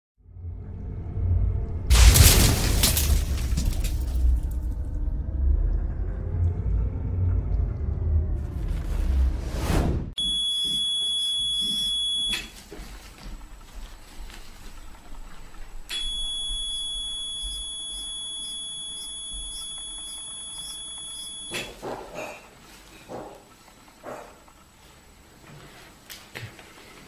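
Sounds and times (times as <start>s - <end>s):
electrocautery unit high-pitched beep: 10.2s - 12.5s, 15.9s - 21.8s.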